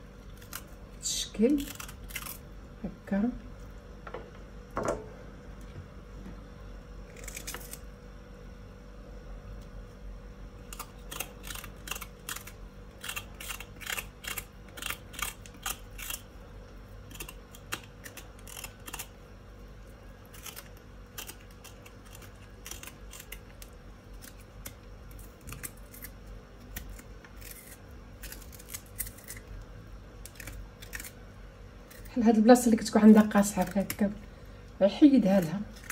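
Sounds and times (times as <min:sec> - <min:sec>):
faint steady hum: 0:00.0 - 0:35.9
knife scraping root skin: 0:17.1 - 0:19.1, 0:20.2 - 0:29.5.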